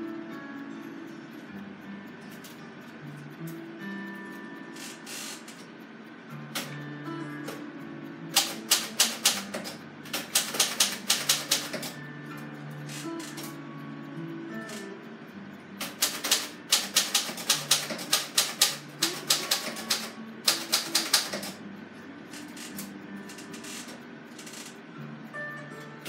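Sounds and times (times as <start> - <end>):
soft radio music: 0.0 - 26.0
typewriter clicking: 4.7 - 5.7, 6.5 - 6.8, 8.3 - 12.0, 12.9 - 13.6, 14.5 - 14.9, 15.8 - 21.6, 22.3 - 24.8.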